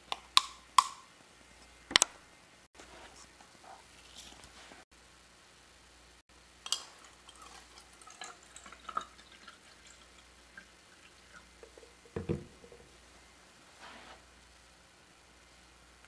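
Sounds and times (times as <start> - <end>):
water pouring into cup: 6.6 - 12.9
bottle set down on table: 12.2 - 12.7.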